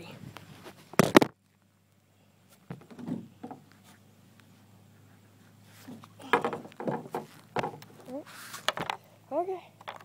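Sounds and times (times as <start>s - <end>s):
soft rustle: 3.6s - 6.2s, 7.1s - 8.9s.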